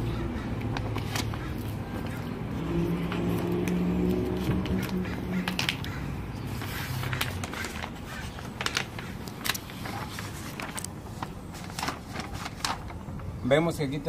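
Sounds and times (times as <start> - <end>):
vehicle engine running: 0.0 - 7.9
vinyl and paper crinkling: 0.0 - 13.5.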